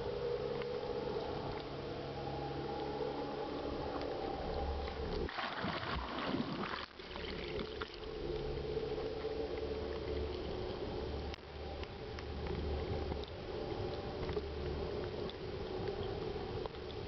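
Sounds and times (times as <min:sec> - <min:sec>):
motorboat engine drone: 0:00.0 - 0:05.3, 0:06.6 - 0:17.0
water splashing: 0:04.8 - 0:11.0
water rushing past: 0:05.2 - 0:08.2.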